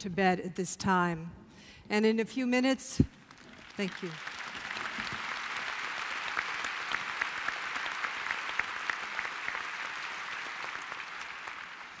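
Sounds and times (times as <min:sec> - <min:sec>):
large audience applauding: 0:03.2 - 0:12.0.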